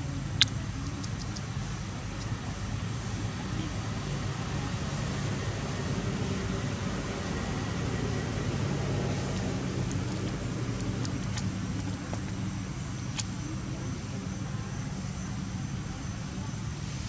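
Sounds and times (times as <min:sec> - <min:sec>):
engine rumble with hum: 0:00.0 - 0:17.0.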